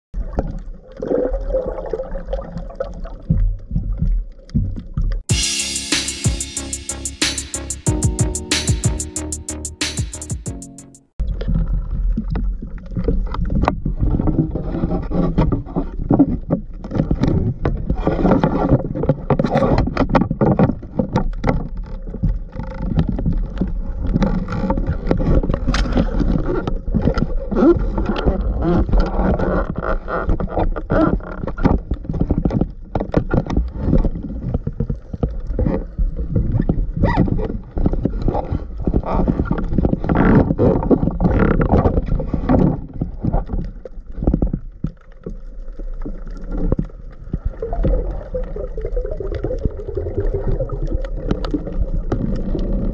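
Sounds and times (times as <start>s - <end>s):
underwater rumble of moving water: 20.6s - 52.9s.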